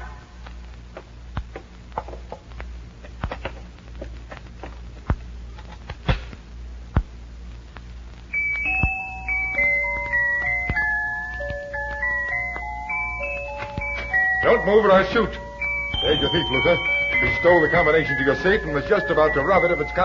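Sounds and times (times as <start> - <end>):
low steady hum: 0.0 - 20.0
music box tinkling tune: 8.3 - 20.0.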